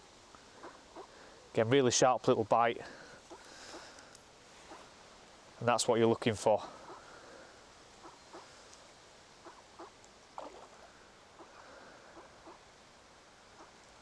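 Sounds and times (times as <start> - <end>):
soft duck calls: 0.5 - 1.2, 4.6 - 4.9, 6.6 - 7.2, 8.0 - 8.7, 9.4 - 12.7, 13.5 - 13.8.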